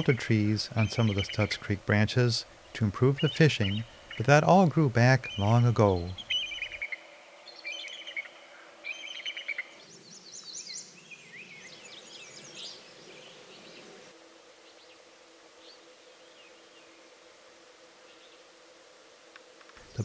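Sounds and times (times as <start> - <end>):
birds chirping and whistling: 0.0 - 1.6, 3.1 - 13.8
songbird trilled phrase: 0.0 - 2.1, 2.8 - 6.9
soft rushing hiss: 0.0 - 20.0.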